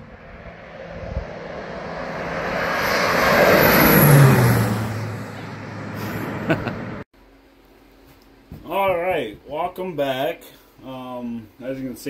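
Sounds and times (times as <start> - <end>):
model airplane engine passing overhead: 0.0 - 7.0.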